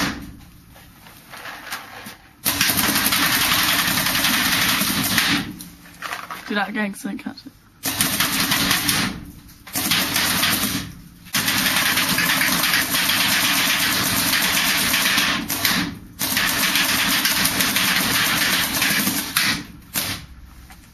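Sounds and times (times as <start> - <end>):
paintball marker firing rapidly: 2.4 - 5.6, 7.8 - 20.3.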